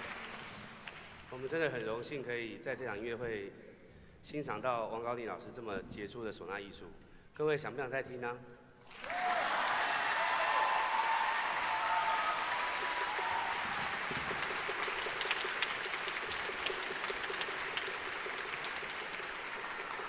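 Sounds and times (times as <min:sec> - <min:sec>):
audience applause: 0:00.0 - 0:01.2, 0:08.9 - 0:20.0.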